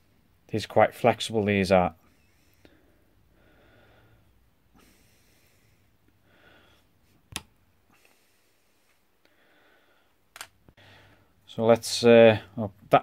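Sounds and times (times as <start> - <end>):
faint nose breathing: 2.0 - 7.0, 7.9 - 11.4.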